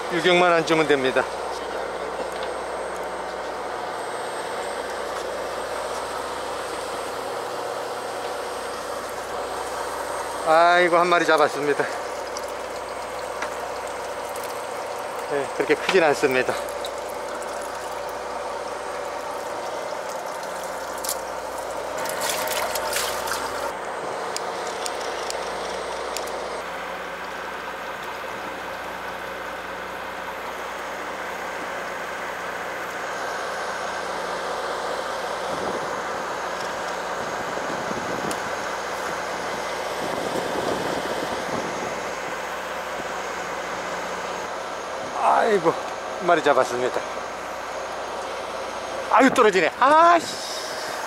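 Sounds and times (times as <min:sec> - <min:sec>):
boat engine running: 0:00.0 - 0:51.0
water washing against hull: 0:04.6 - 0:23.8.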